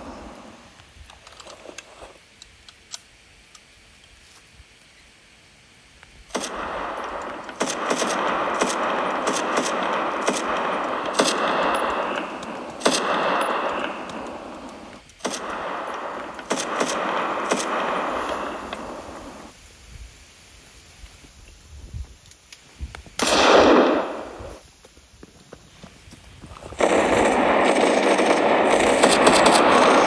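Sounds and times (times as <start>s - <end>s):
machine-gun fire: 6.3s - 19.5s, 23.2s - 24.5s, 26.8s - 30.0s.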